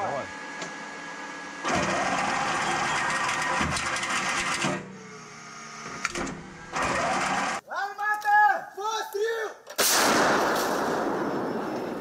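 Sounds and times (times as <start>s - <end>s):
soft mechanical hum: 0.0s - 7.6s.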